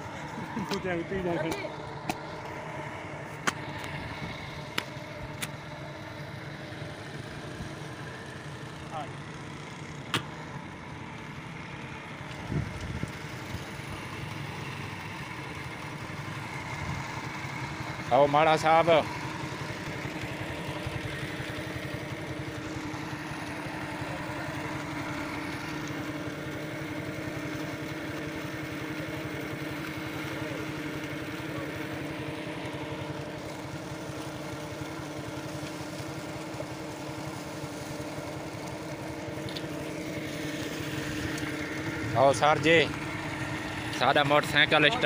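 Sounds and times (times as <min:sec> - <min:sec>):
small engine idling: 0:00.0 - 0:45.0.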